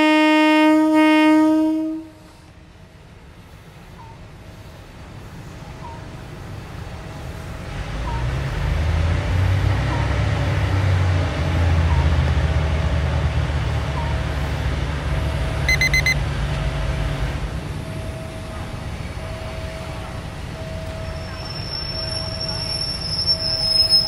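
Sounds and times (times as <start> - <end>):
diesel engine humming: 2.6 - 22.8
high beeps: 15.7 - 16.2.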